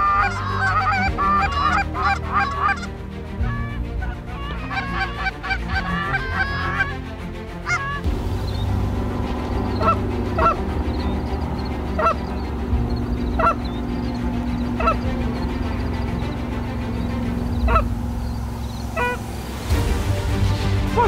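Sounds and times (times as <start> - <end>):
geese honking: 0.0 - 7.0, 7.6 - 20.1
steady low hum: 8.1 - 21.0.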